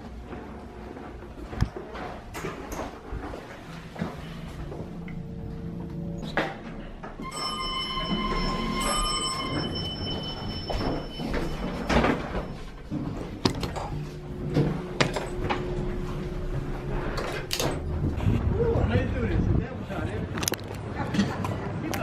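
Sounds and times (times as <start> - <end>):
elevator doors sliding: 0.0 - 19.2
faint elevator hum: 0.0 - 19.7
elevator chime: 7.2 - 18.0.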